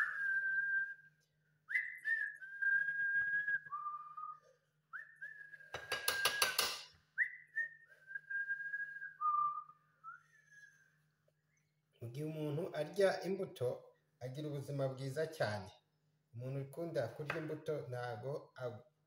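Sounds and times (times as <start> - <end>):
whistled phrases: 0.0 - 11.0.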